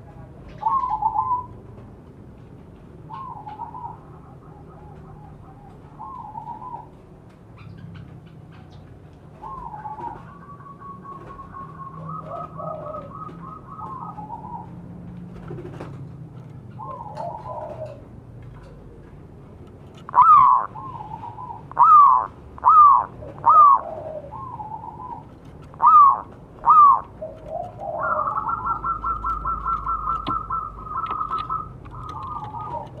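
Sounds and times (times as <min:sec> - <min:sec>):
dove cooing: 0:00.0 - 0:01.6, 0:03.0 - 0:07.0, 0:09.3 - 0:19.2, 0:20.0 - 0:33.0
loud ringing dove notes: 0:20.1 - 0:33.0.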